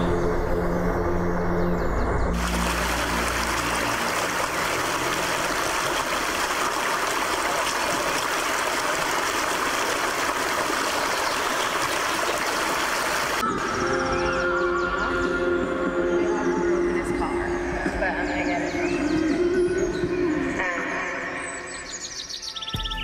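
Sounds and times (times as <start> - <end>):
stream rushing over rocks: 2.4 - 13.4.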